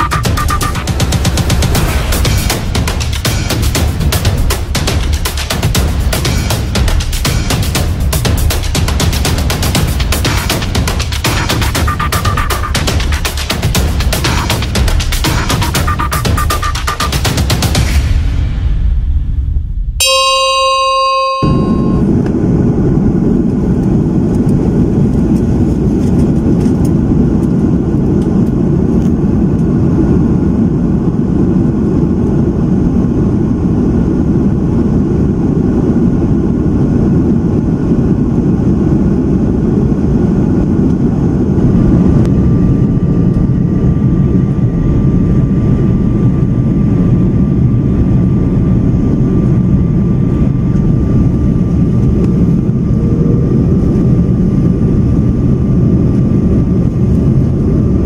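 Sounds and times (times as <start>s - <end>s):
jet engine cabin rumble: 0.0s - 58.0s
steady whine: 0.0s - 58.0s.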